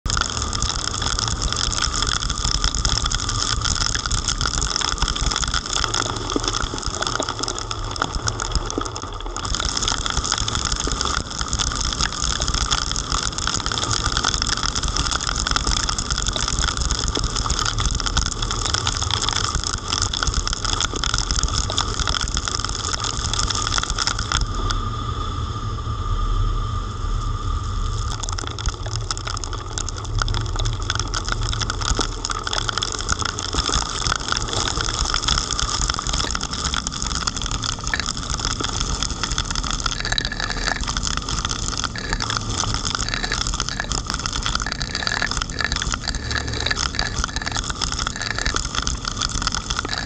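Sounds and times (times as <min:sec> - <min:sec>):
heavy rain hitting camera: 0:00.0 - 0:24.8, 0:27.9 - 0:50.0
tyre noise on wet road: 0:00.0 - 0:24.9, 0:27.6 - 0:50.0.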